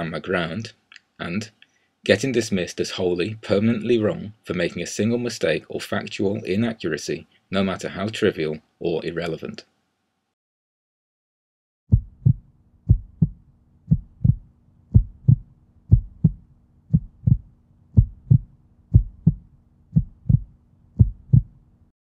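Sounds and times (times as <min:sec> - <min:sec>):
heartbeat double thump: 0:11.9 - 0:21.6
faint low hum: 0:12.0 - 0:21.9.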